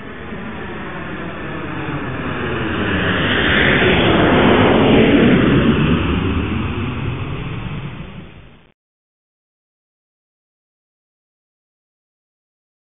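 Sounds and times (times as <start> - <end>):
aircraft flying past: 0.0 - 8.7.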